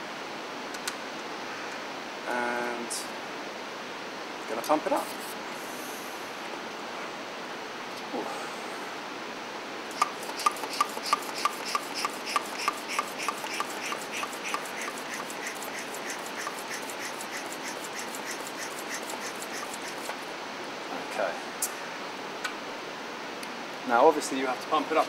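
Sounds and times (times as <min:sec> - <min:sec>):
bicycle pump squeaky hissing strokes: 0:10.0 - 0:20.2.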